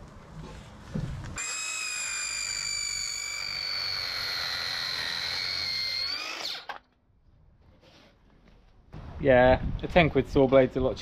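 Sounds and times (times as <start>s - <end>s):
circular saw cutting timber: 1.4s - 6.8s.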